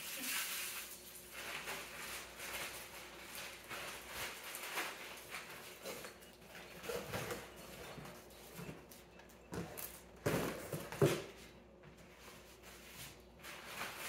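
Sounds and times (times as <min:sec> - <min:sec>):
cardboard rustling and scraping: 0:01.3 - 0:14.0
boxes knocking on wooden floor: 0:09.5 - 0:11.4.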